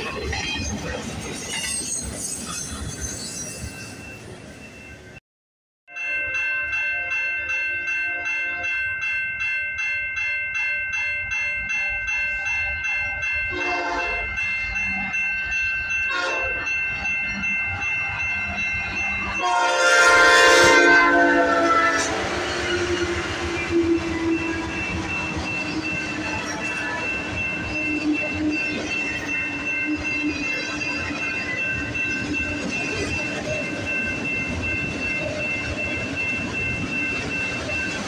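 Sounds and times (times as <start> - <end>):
freight train wheels rumbling: 0.0 - 4.5, 12.7 - 38.0
crossing bell ringing: 0.0 - 5.2, 5.9 - 38.0
train air horn blasts: 13.5 - 14.2, 16.1 - 16.6, 19.4 - 24.4.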